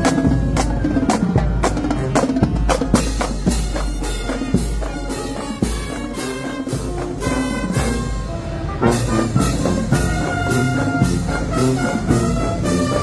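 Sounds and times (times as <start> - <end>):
snare and bass drums: 0.0 - 8.2
trumpets and brass playing: 0.0 - 13.0.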